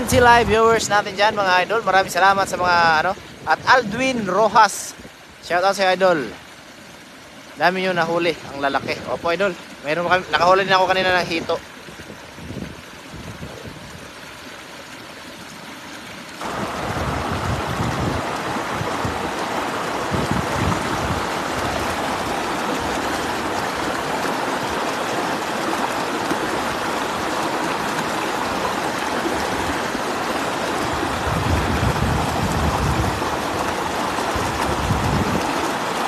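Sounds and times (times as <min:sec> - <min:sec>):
river rapids rushing: 0:00.0 - 0:04.9, 0:15.4 - 0:36.0.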